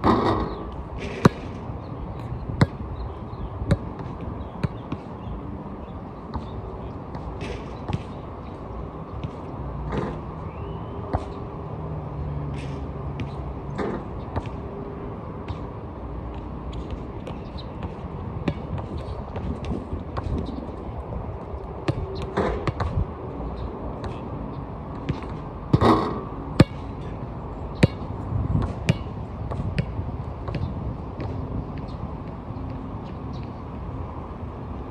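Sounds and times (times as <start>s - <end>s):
basketball bouncing on court: 3.6s - 5.1s, 6.3s - 8.2s, 9.2s - 10.2s, 13.2s - 14.6s, 16.8s - 20.5s, 25.0s - 27.1s, 27.8s - 32.0s.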